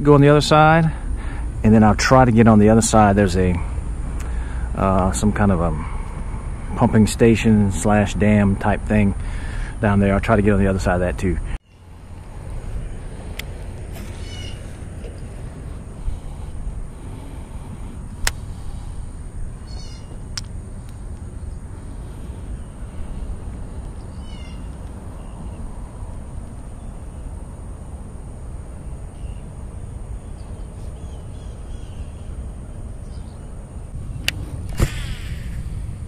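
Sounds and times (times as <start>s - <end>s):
low outdoor rumble: 0.0s - 36.0s
bird calling high notes: 14.1s - 14.8s, 19.6s - 20.2s
sharp clicks: 20.3s - 21.3s.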